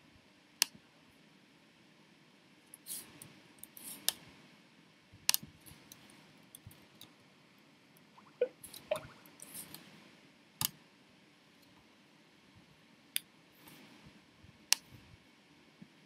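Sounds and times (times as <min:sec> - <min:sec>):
faint room hiss: 0:00.0 - 0:16.0
small sharp clicks: 0:00.6 - 0:00.8, 0:05.3 - 0:07.2, 0:13.1 - 0:13.8, 0:14.7 - 0:15.0.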